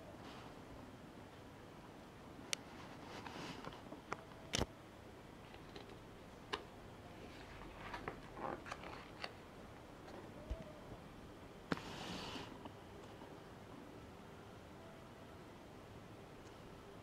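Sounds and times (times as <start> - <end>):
paper page rustling: 7.3 - 9.4.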